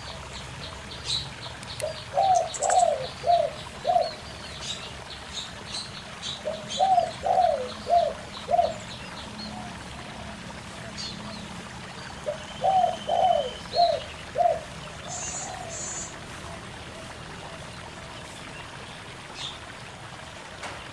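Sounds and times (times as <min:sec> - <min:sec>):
small birds chirping: 0:00.0 - 0:09.5, 0:10.9 - 0:16.2
rocky stream rushing: 0:00.0 - 0:20.9
doves cooing: 0:01.8 - 0:04.2, 0:06.4 - 0:08.9, 0:12.2 - 0:18.2.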